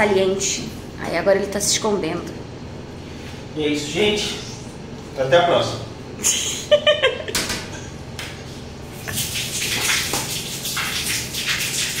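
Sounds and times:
shower water spraying: 8.9 - 12.0.

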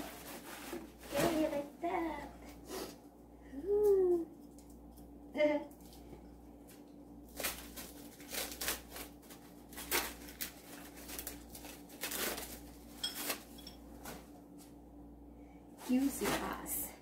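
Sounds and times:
packing wrap rustling: 0.0 - 1.9, 7.3 - 14.3.

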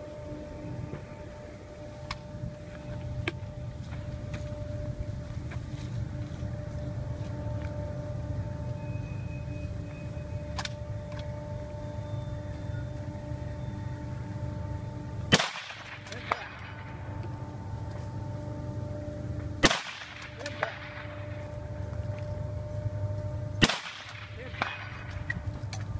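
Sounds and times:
rifle shot: 15.3 - 16.8, 19.6 - 21.2, 23.6 - 25.2.

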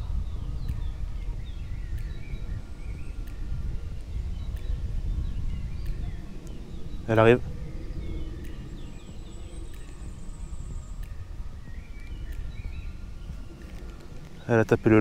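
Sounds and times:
faint bird chirps: 0.0 - 15.0
steady low rumble: 0.0 - 15.0
soft ticks: 0.6 - 6.8, 7.8 - 15.0.

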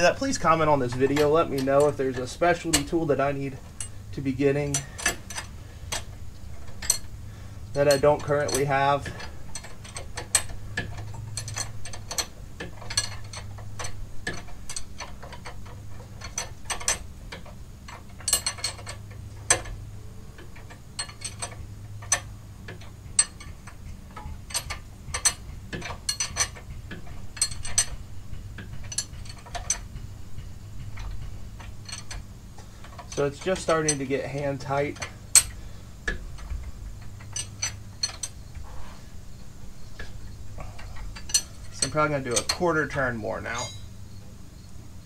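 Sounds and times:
ratchet wrench clicking: 4.7 - 28.0, 28.6 - 30.1
metal tool clinks: 43.5 - 43.9.

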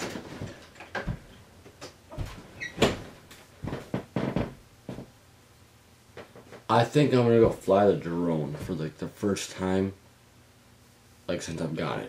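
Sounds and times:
knocks and thumps: 0.0 - 5.1.

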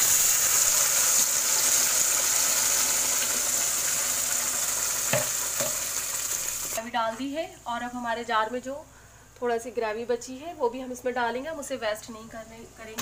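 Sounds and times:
gravy sizzling in hot oil: 0.0 - 6.8.

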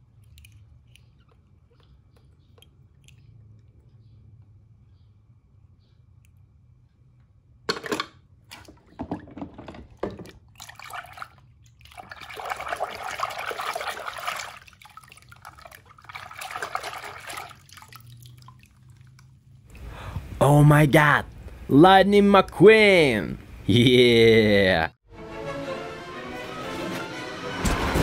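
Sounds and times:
water splashing in plastic tub: 8.4 - 19.5.

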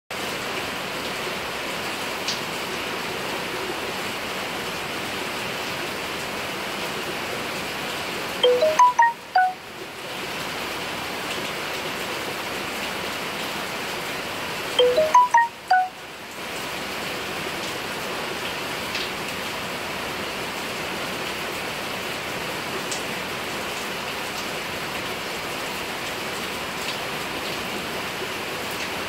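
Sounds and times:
bright chime-like notes: 8.4 - 9.6, 14.8 - 15.9.

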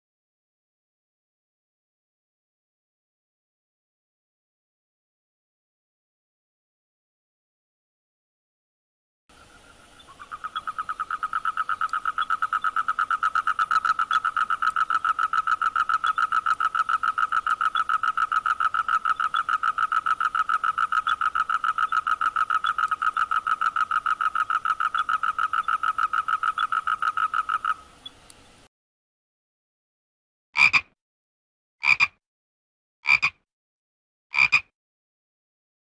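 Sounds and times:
frog trilling: 10.0 - 27.9, 30.6 - 30.9, 31.8 - 32.2, 33.1 - 33.4, 34.3 - 34.7.

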